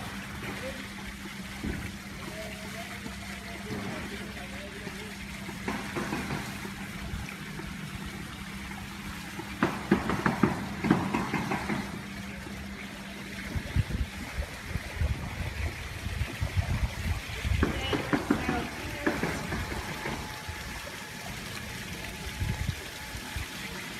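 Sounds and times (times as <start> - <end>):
pool water trickling and lapping: 0.0 - 23.9
sharp knocks: 5.6 - 6.8, 9.6 - 12.0, 17.6 - 20.3.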